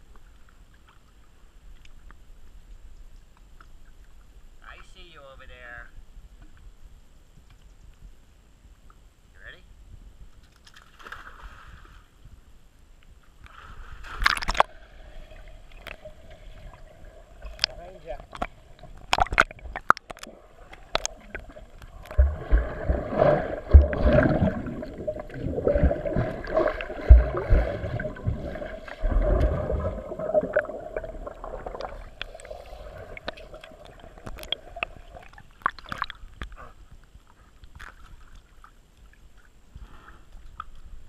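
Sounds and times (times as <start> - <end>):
muffled underwater splashing: 13.6 - 36.8.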